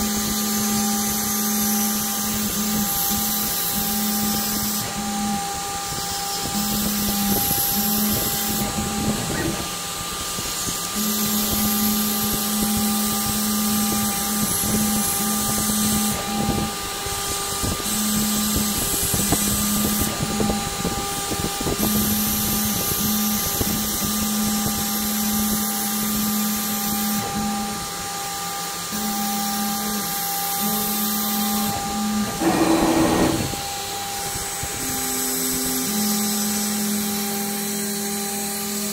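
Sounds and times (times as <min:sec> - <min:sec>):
router spindle whine: 0:00.0 - 0:22.2, 0:27.2 - 0:38.8
stepper motors humming: 0:31.4 - 0:34.3.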